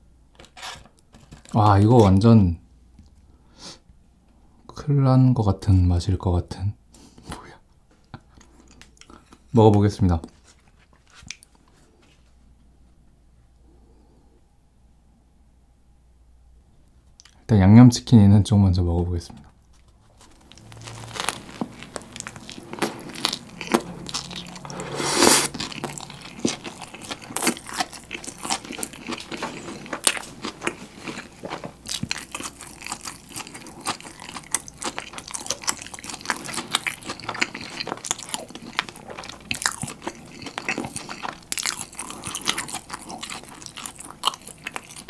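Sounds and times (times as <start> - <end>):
wet chewing with crunches: 19.7 - 45.0
biting into burger: 20.2 - 45.0.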